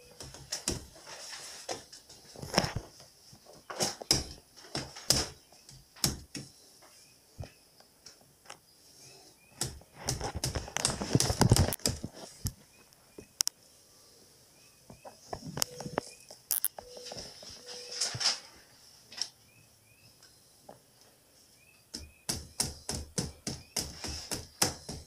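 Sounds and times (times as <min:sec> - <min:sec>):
handling noise: 0:09.6 - 0:13.4.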